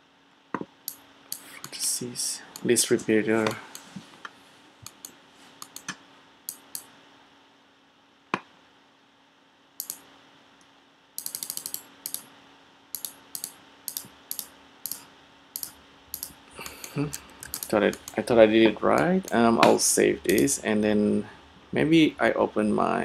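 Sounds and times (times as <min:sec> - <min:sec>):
faint steady hum: 0:00.0 - 0:23.0
mouse clicks: 0:04.8 - 0:06.9, 0:09.8 - 0:10.0, 0:11.2 - 0:12.2, 0:12.9 - 0:15.0, 0:15.6 - 0:18.2, 0:18.9 - 0:20.6
keyboard keystrokes: 0:11.2 - 0:12.2, 0:15.6 - 0:18.2, 0:18.9 - 0:20.6.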